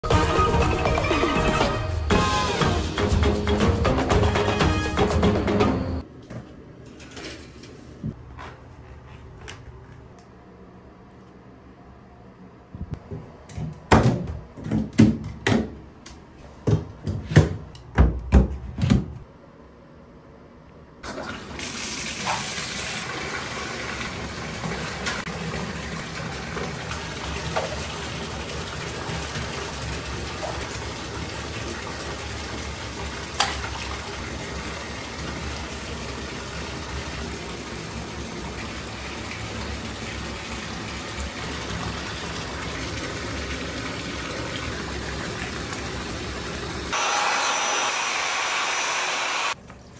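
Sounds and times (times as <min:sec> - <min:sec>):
tap water filling bathtub: 0:21.0 - 0:46.9.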